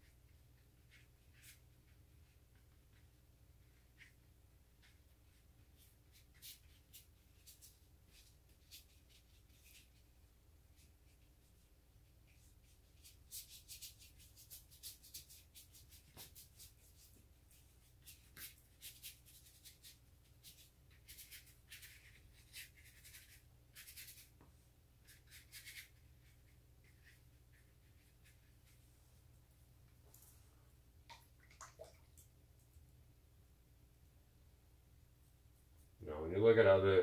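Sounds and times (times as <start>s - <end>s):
paintbrush scratching on paper: 0.0s - 29.2s.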